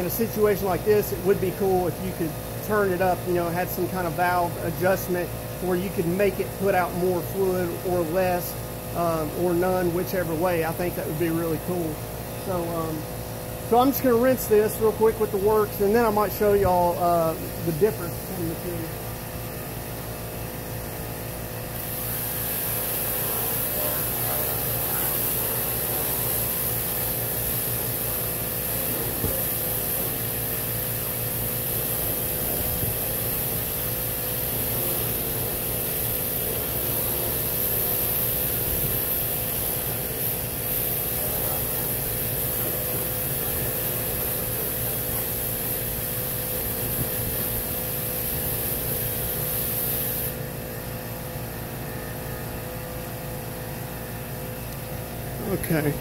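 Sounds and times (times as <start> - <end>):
machine hum: 10.6 - 41.8
pressure washer spraying water: 21.8 - 50.4.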